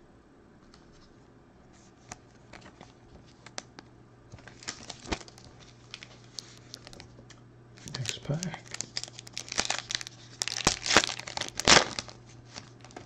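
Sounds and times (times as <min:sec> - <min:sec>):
trading cards clicking and rustling: 0:02.0 - 0:13.0.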